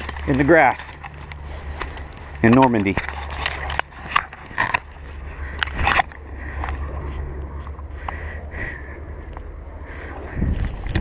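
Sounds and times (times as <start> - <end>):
rustles of grass and clothing: 0.0 - 11.0
wind buffeting microphone: 3.0 - 11.0.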